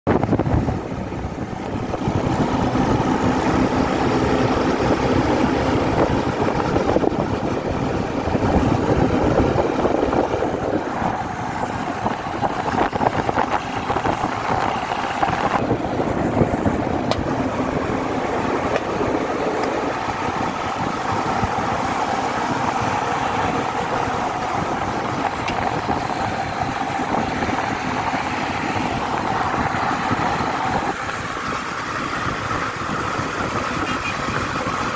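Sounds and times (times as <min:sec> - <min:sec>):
wind rushing: 0:00.1 - 0:34.8
motorcycle engine running: 0:00.1 - 0:34.9.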